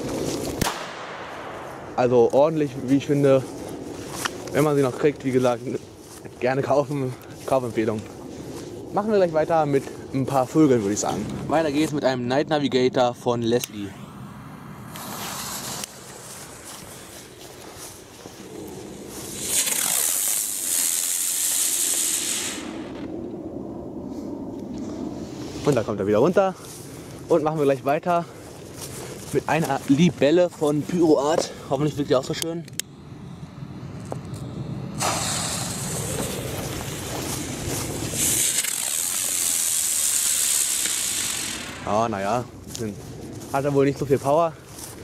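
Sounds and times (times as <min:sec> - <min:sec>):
firework hissing: 0:14.6 - 0:23.1, 0:32.8 - 0:42.6.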